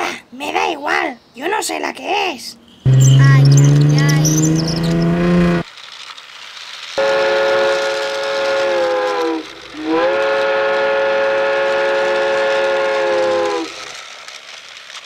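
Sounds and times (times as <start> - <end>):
steam hiss: 6.3 - 15.0
steam train whistle blasts: 7.0 - 13.9.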